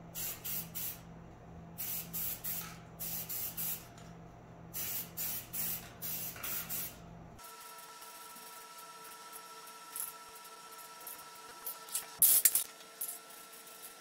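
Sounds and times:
steady low hum: 0.0 - 7.4
spray can hissing: 4.8 - 7.0, 12.2 - 12.6.

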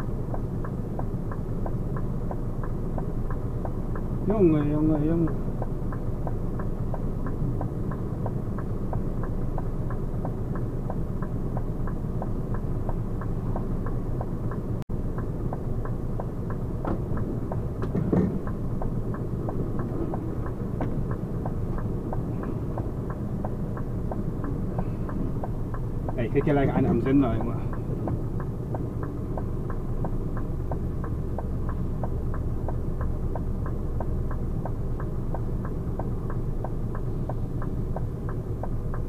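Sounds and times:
diesel engine idling: 0.0 - 39.0
even ticking: 0.0 - 39.0.

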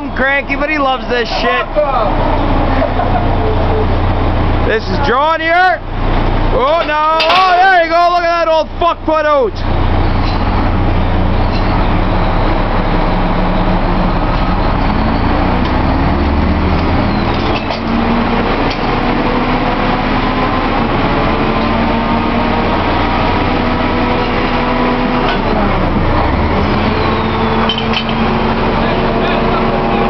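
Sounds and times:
drilling rig machinery running: 0.0 - 30.0
metal pipe clanks: 6.7 - 7.6, 10.1 - 10.6, 11.4 - 11.9, 27.6 - 28.4.

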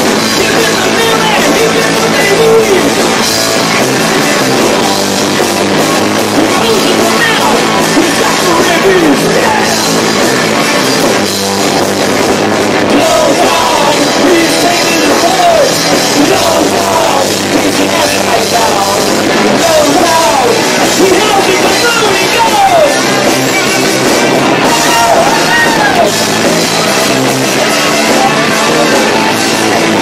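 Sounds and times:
distorted punk rock band playing: 0.0 - 30.0.

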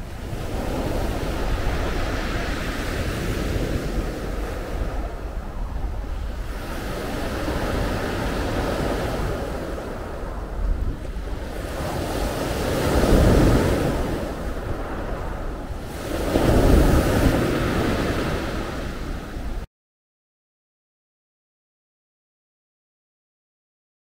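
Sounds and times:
wind buffeting microphone: 0.0 - 19.7
waves breaking on pebble beach: 11.0 - 19.3.

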